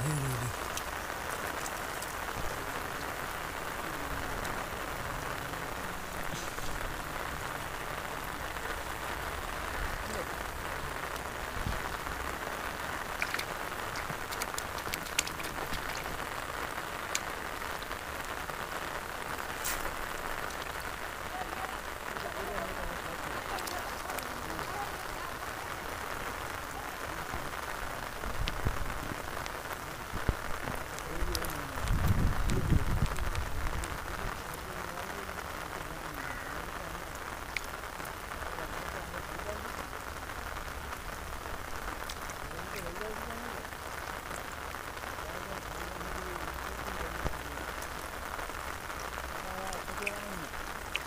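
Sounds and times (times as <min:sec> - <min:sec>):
rain-like hiss: 0:00.0 - 0:51.0
small splashes: 0:13.0 - 0:16.3.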